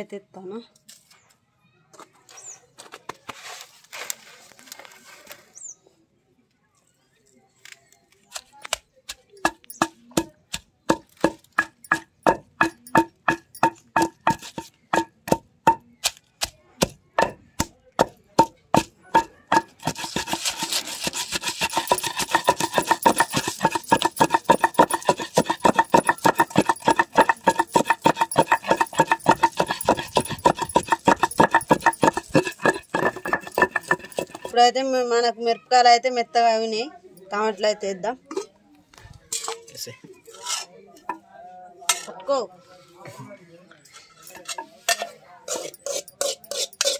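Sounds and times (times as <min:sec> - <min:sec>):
wooden pestle pounding in stone mortar: 0:09.4 - 0:34.6, 0:45.5 - 0:46.9.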